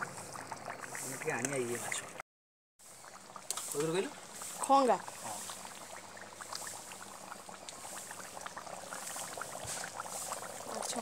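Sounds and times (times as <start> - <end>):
curry bubbling and popping: 0.0 - 2.2, 2.8 - 11.0.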